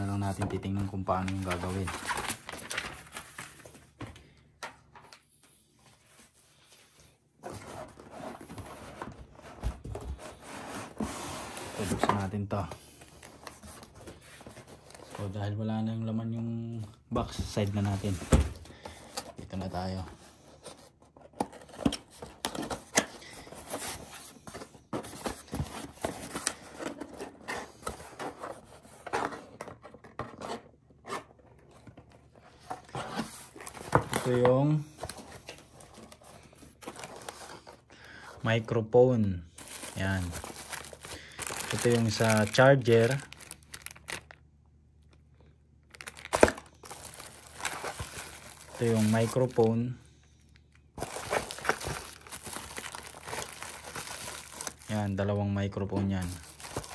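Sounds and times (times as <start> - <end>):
paper packaging rustling: 0.0 - 4.1, 7.4 - 15.6, 17.3 - 38.2, 39.6 - 44.4, 45.9 - 49.9, 51.0 - 55.3, 55.9 - 56.9
box scraping and rubbing: 7.5 - 12.0.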